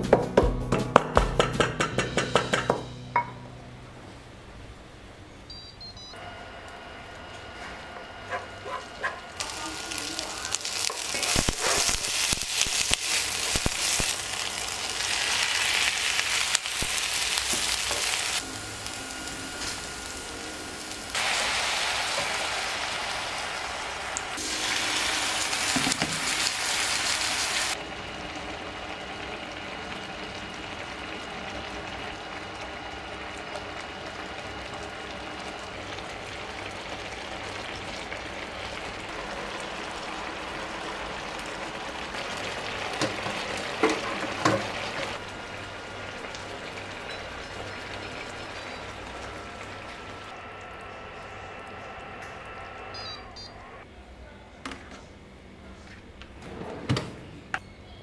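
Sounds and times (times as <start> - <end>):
food sizzling in oil: 9.0 - 51.8.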